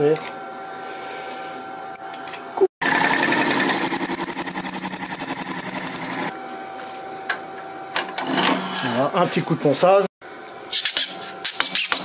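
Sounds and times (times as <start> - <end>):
lathe tool chattering with whine: 2.8 - 6.3
lathe humming: 2.8 - 6.4.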